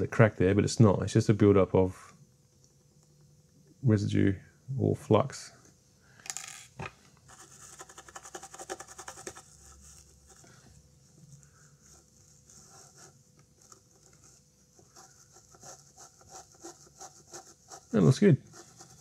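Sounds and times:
toothbrush scrubbing circuit board: 0:07.3 - 0:10.4, 0:11.8 - 0:19.0.

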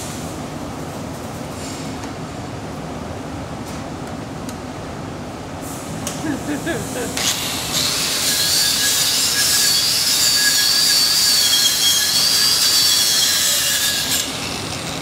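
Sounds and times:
angle grinder grinding steel: 0:07.2 - 0:15.0.

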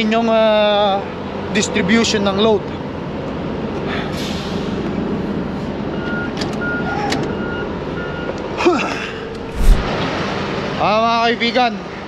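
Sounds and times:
vehicle backup alarm beeping: 0:05.9 - 0:08.4
steady mechanical hum: 0:09.0 - 0:10.6.

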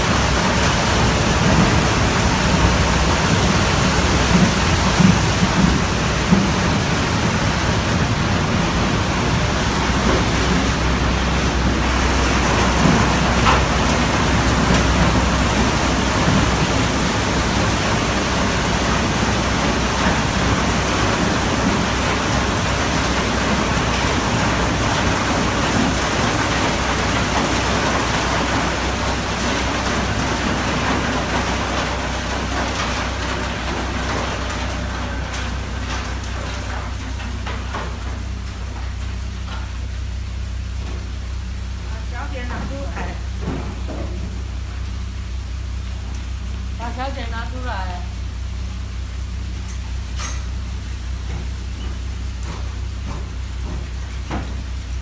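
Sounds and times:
crushed ice rushing down chute: 0:11.5 - 0:38.8.

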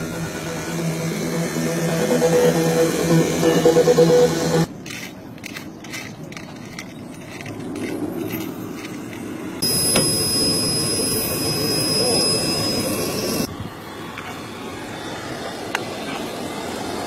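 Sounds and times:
model jet engine whine: 0:00.0 - 0:04.7, 0:09.6 - 0:17.0.

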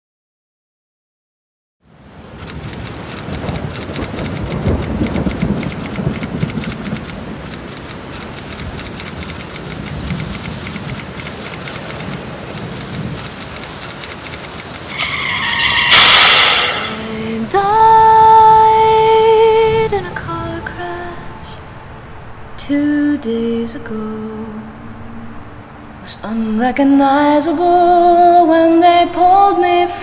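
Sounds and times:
heavy rain: 0:01.8 - 0:22.7
tyres screeching into a skid: 0:14.8 - 0:17.6.

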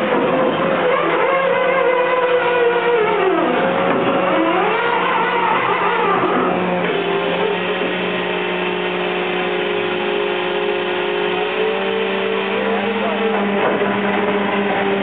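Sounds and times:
boat engine and deck machinery: 0:00.0 - 0:15.0.

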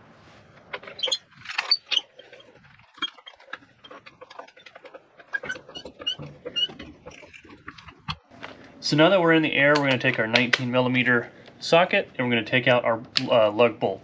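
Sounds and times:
floor jack squeaking and clicking: 0:00.7 - 0:08.3.

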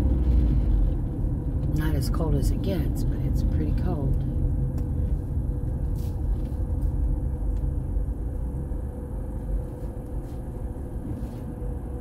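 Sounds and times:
car cabin engine and road rumble: 0:00.0 - 0:12.0.

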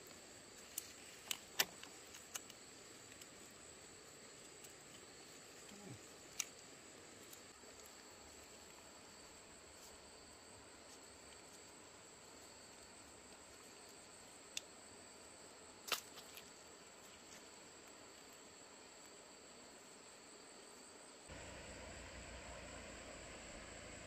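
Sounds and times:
bamboo strips clicking: 0:00.6 - 0:03.4.

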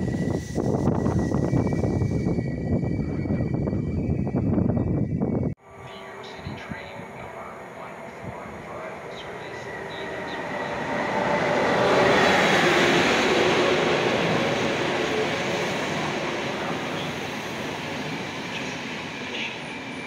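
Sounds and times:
train rumbling into station: 0:00.0 - 0:20.0.

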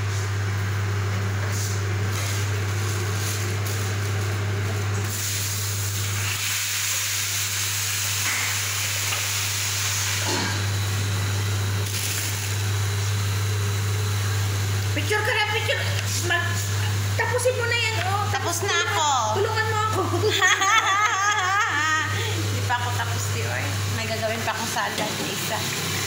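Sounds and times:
low machine hum: 0:00.0 - 0:26.0
hiss: 0:05.0 - 0:10.5.

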